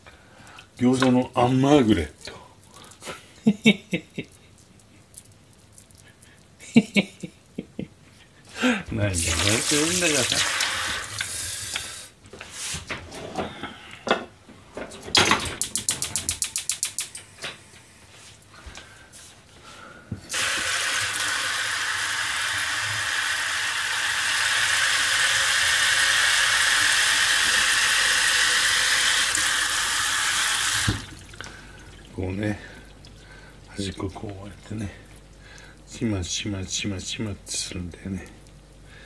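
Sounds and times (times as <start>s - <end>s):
water running into steel sink: 9.2s - 11.6s, 20.3s - 35.0s.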